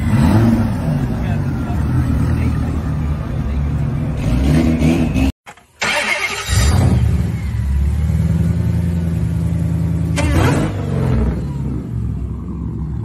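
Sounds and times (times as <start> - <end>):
car engine starting: 0.0 - 13.0.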